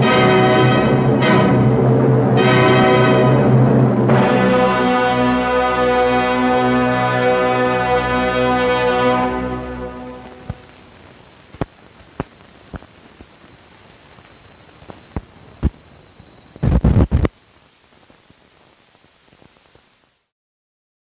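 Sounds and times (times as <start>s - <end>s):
film soundtrack hiss: 0.0s - 20.3s
burst of crackle: 8.3s - 20.2s
pops and clicks: 10.3s - 15.8s, 16.6s - 17.4s.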